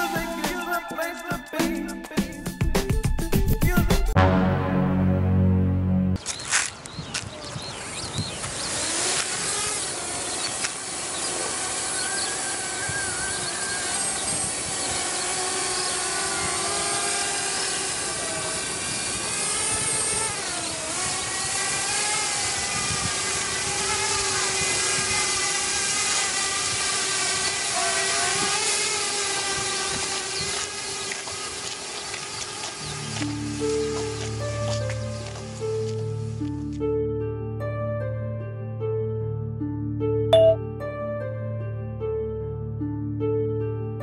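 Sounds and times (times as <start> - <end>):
quadcopter propellers whining: 7.2 - 34.2.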